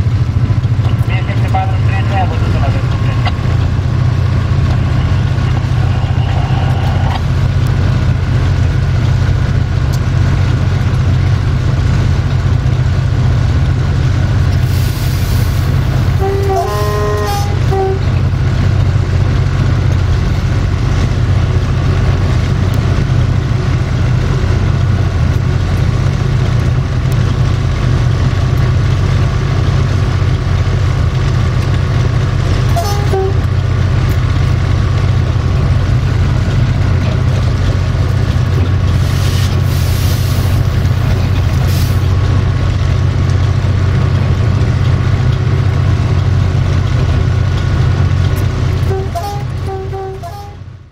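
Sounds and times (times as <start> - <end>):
locomotive engine running: 0.0 - 50.9
air hiss: 14.6 - 15.8, 39.0 - 40.6
short horn toot: 16.2 - 18.1, 32.7 - 33.5, 48.8 - 50.6.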